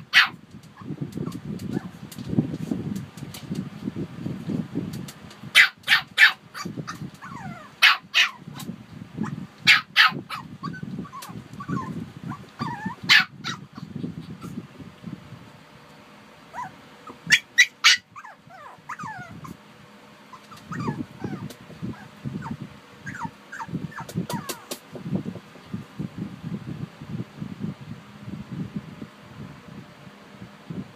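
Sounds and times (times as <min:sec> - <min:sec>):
dogs barking: 0:00.0 - 0:00.4, 0:05.5 - 0:08.5, 0:09.2 - 0:13.8, 0:16.5 - 0:19.6
dogs whining: 0:06.6 - 0:08.5, 0:09.2 - 0:14.6, 0:16.5 - 0:19.6, 0:20.2 - 0:24.8.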